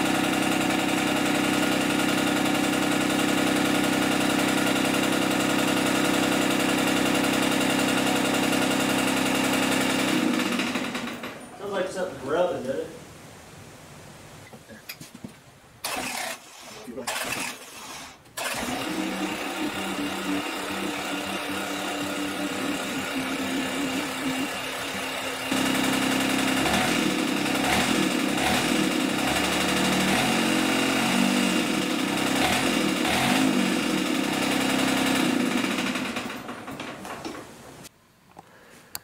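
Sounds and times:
diesel tractor engine running: 0.0 - 11.5, 18.4 - 37.4.

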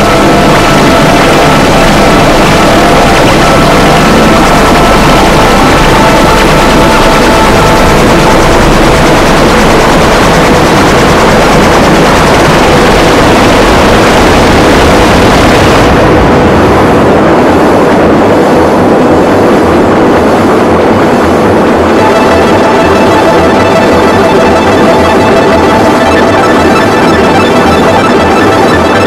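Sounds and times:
distorted synthesizer noise: 0.0 - 29.0
faint sustained tones: 21.8 - 29.0.

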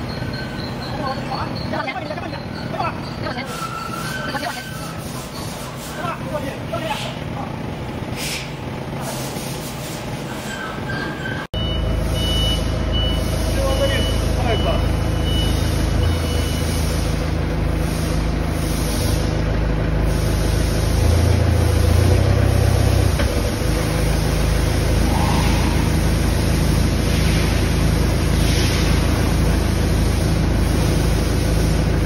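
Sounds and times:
factory machinery humming: 0.0 - 32.0
loud low drone: 23.7 - 28.6.

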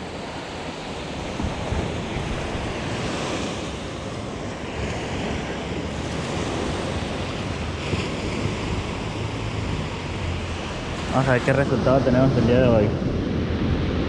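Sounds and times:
small waves washing onto beach: 0.0 - 14.0
wind rumbling on microphone: 0.0 - 14.0.

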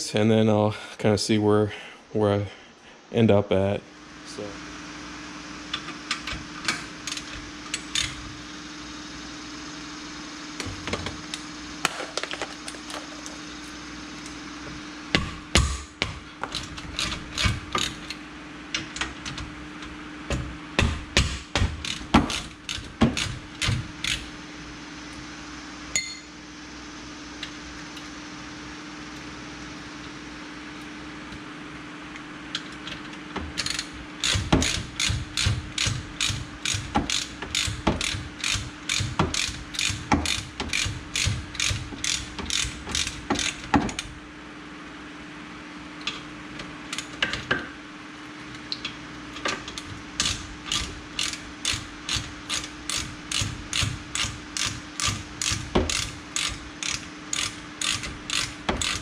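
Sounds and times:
steady low hum: 0.0 - 59.0
ratchet wrench clicking: 7.1 - 8.2, 21.8 - 24.3, 33.6 - 43.6, 50.2 - 59.0.

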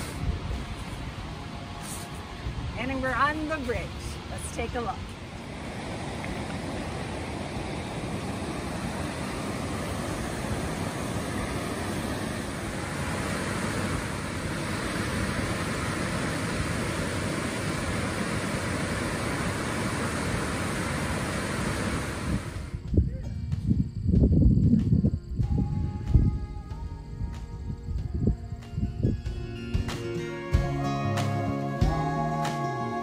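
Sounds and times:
waterfall roaring: 1.4 - 22.7.

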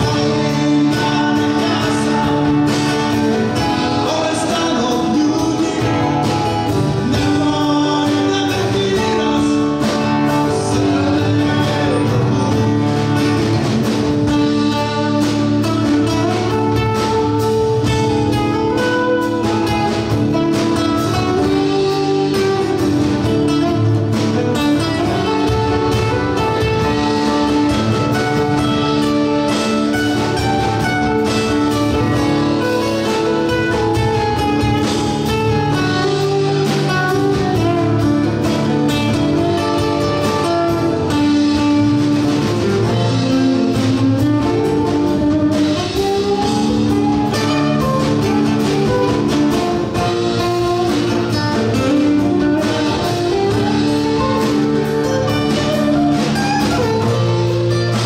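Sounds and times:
lead vocal singing: 0.0 - 13.5
live band playing: 0.0 - 58.0.

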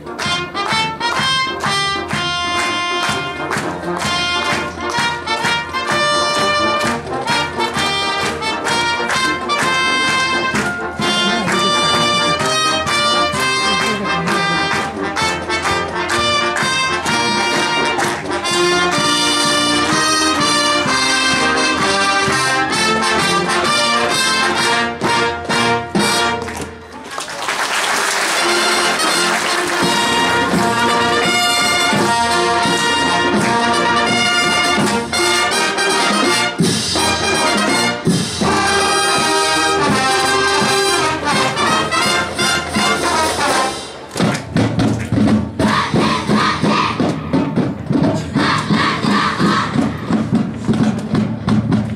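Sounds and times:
drumline drums: 0.0 - 51.9
marching band playing: 0.0 - 51.9
players shouting together: 48.3 - 49.9.

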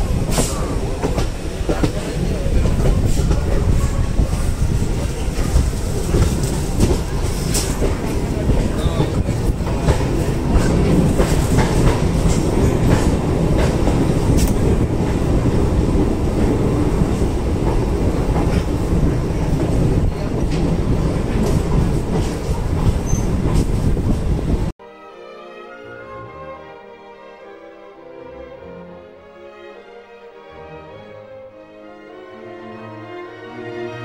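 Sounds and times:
train rumbling on rails: 0.0 - 24.7
orchestral music: 24.8 - 34.0.

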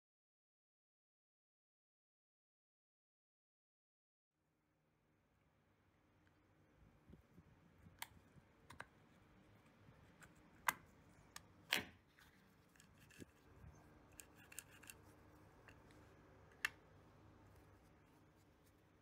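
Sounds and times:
metal parts clacking: 14.1 - 15.0
small metal clicks: 14.1 - 16.8.

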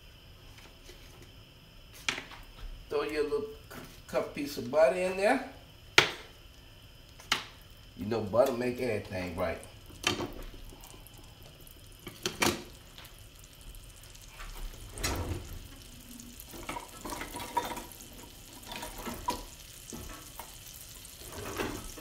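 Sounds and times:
butter sizzling in wok: 0.1 - 22.0
kitchen clatter: 16.5 - 22.0.

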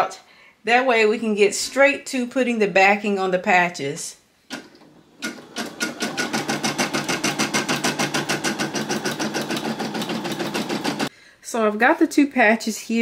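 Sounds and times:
embroidery machine stitching: 4.5 - 11.1.

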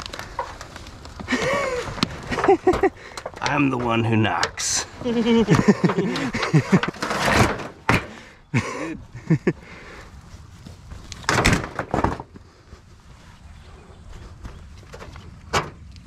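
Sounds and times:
rough handling noise: 0.0 - 8.2.

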